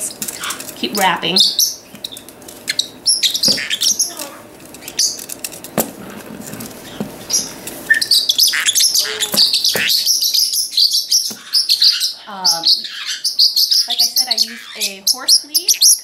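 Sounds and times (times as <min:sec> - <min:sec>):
parrot squawky calls: 0:00.0 - 0:05.2, 0:06.8 - 0:16.0
parrots chirping: 0:00.0 - 0:16.0.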